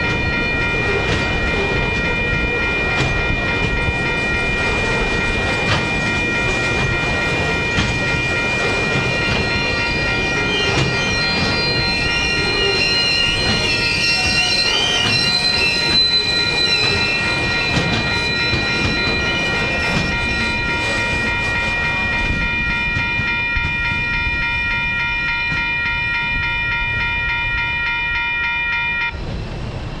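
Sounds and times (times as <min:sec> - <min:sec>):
crossing warning bell ringing: 0:00.0 - 0:29.7
train wagons rumbling: 0:00.0 - 0:30.0
wheel squeal: 0:09.3 - 0:22.6.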